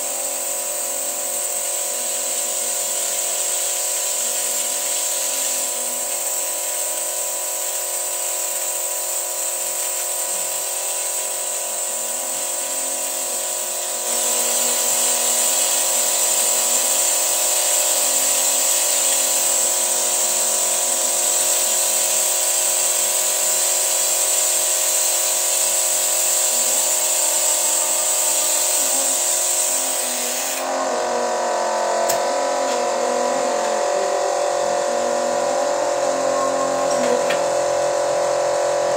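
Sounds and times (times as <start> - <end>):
high hiss: 8.4 - 30.8.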